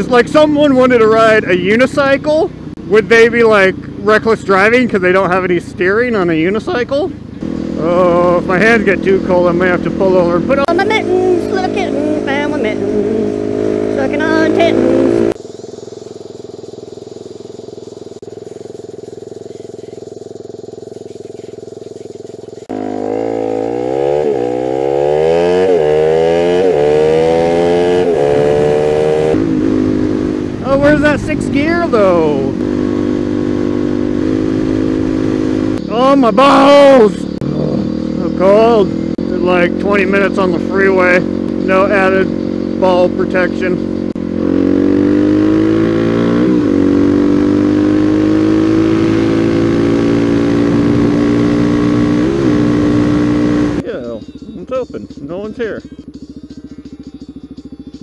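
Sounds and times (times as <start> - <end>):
motorcycle engine accelerating: 0.0 - 58.0
wind rushing: 29.3 - 35.8.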